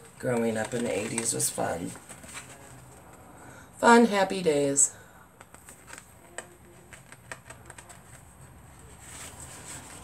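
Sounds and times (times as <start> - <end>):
paper pages clicking and rustling: 0.0 - 3.3, 5.4 - 10.0.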